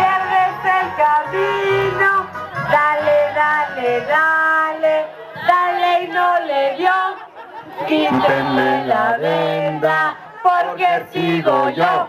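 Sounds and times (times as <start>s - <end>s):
voices singing: 0.0s - 12.0s.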